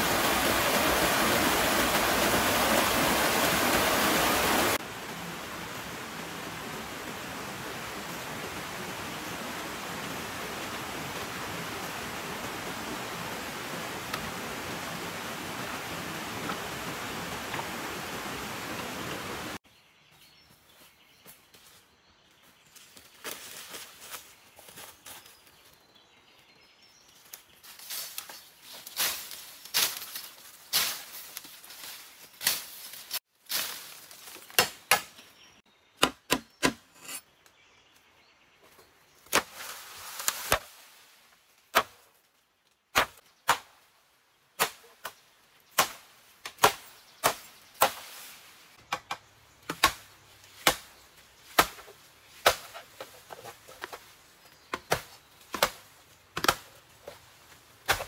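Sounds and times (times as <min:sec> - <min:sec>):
bamboo leaves rustling: 0:20.7 - 0:25.8, 0:27.1 - 0:35.2, 0:38.6 - 0:43.9, 0:44.6 - 0:48.9, 0:49.6 - 0:58.0
machete chopping bamboo: 0:34.5 - 0:35.1, 0:36.0 - 0:36.9, 0:41.7 - 0:42.0, 0:42.9 - 0:43.7, 0:44.6 - 0:45.2, 0:45.8 - 0:48.1, 0:48.9 - 0:50.9, 0:51.5 - 0:53.1, 0:54.7 - 0:56.7.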